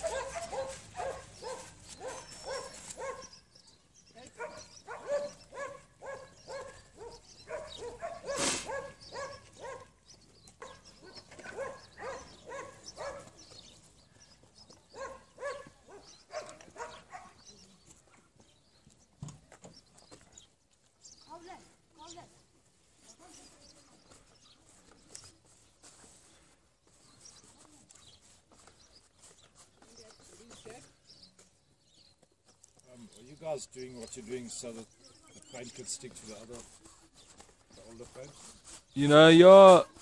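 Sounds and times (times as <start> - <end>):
dog barking: 0.0 - 3.4, 4.4 - 10.0, 10.6 - 13.4, 14.9 - 17.4
handling noise: 0.0 - 3.4.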